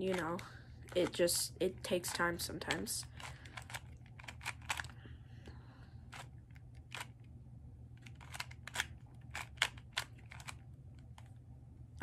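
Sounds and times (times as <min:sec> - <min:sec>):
puzzle cube pieces clicking: 0:02.0 - 0:05.0, 0:08.0 - 0:11.3.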